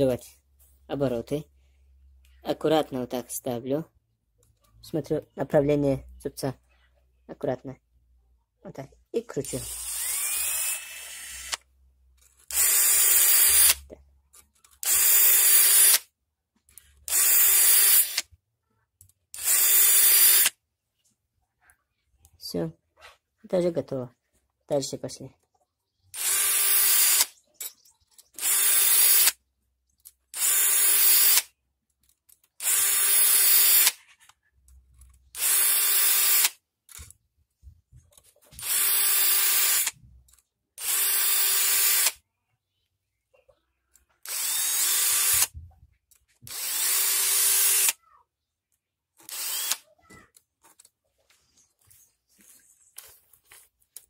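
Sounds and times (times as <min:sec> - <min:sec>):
drill filing saw chain: 0:09.5 - 0:11.6, 0:12.3 - 0:13.9, 0:14.7 - 0:16.1, 0:17.1 - 0:18.2, 0:19.3 - 0:20.5, 0:26.2 - 0:29.4, 0:30.3 - 0:31.5, 0:32.5 - 0:34.0, 0:35.3 - 0:36.6, 0:38.6 - 0:40.0, 0:40.8 - 0:42.2, 0:44.2 - 0:45.5, 0:46.5 - 0:48.0, 0:49.2 - 0:49.9
drill motor whine: 0:09.7 - 0:11.6.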